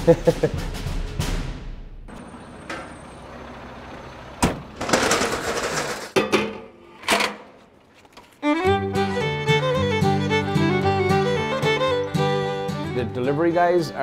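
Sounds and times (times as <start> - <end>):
metal kegs clanking: 4.4 - 7.7.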